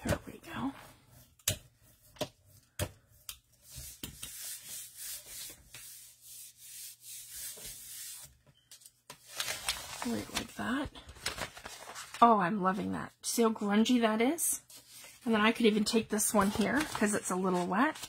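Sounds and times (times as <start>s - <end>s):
hand rubbing paper swishing: 3.6s - 8.3s.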